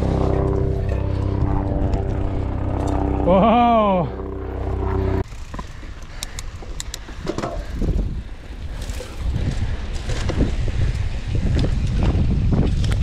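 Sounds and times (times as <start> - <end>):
wind buffeting microphone: 0.0 - 3.3, 4.2 - 13.0
bike clicks and rattles: 0.5 - 3.2, 5.2 - 13.0.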